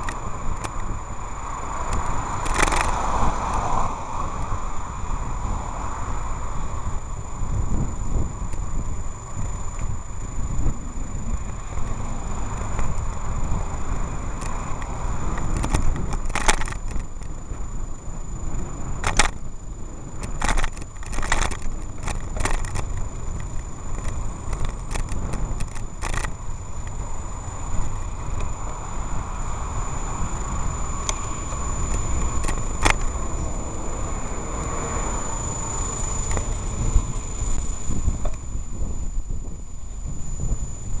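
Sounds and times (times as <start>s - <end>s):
sharp clicks and rattles: 0.0s - 1.0s, 1.8s - 3.6s, 11.3s - 17.7s, 18.5s - 27.1s, 30.5s - 33.2s, 35.4s - 38.5s
faint high whine: 0.0s - 41.0s
street traffic: 0.0s - 41.0s
wind noise: 0.0s - 41.0s.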